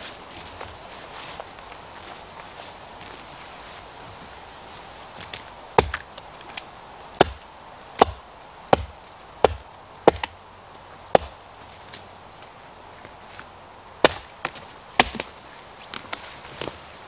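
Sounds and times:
axe striking wood: 5.8s - 6.1s, 7.2s - 7.4s, 8.0s - 10.4s, 11.1s - 11.4s, 14.0s - 15.3s.

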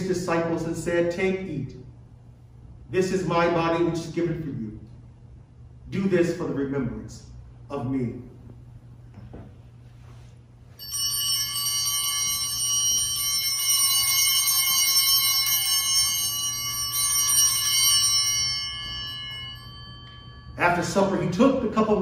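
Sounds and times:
altar bells ringing: 10.8s - 22.0s.

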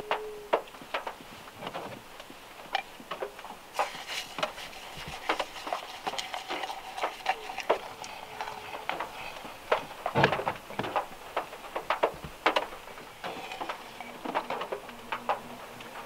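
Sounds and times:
faint patter of rain: 0.0s - 16.0s
raindrops dripping on car roof: 0.1s - 3.8s, 7.9s - 16.0s.

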